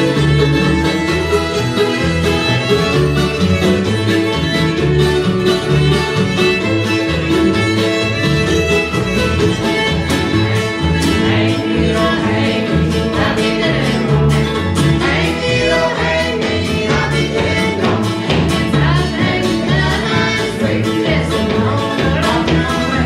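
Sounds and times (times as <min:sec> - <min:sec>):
fiddle: 0:00.0 - 0:23.0
guitar: 0:00.0 - 0:23.0
mandolin: 0:00.0 - 0:23.0
upright bass: 0:00.0 - 0:23.0
voices singing in harmony: 0:11.0 - 0:23.0.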